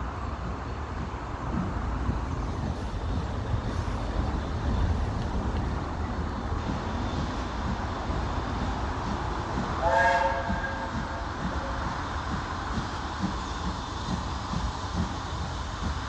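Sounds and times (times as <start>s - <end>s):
steam locomotive rumbling: 0.0s - 16.0s
steam locomotive whistle: 9.8s - 11.9s.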